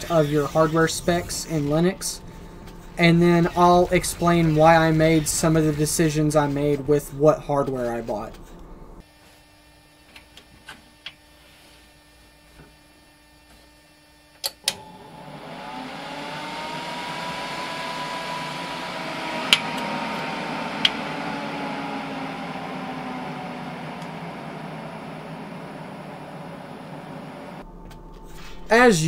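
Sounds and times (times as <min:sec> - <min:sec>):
case fans whooshing and whining: 0:14.7 - 0:27.6.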